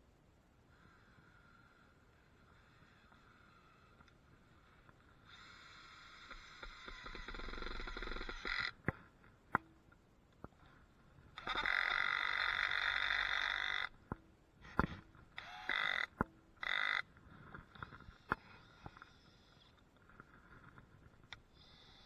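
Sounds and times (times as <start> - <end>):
power tool motor whine: 5.3 - 8.7.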